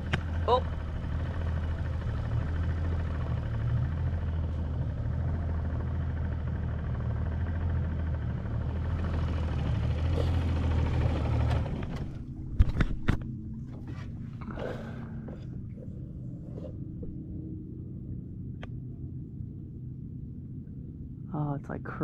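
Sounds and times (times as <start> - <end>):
outboard motor humming: 0.0 - 19.7.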